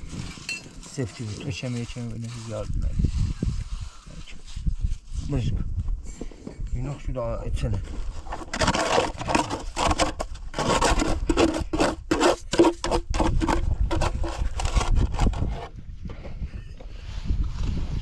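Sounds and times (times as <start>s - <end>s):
tool scraping wet mortar: 0.0s - 5.5s, 7.9s - 15.8s.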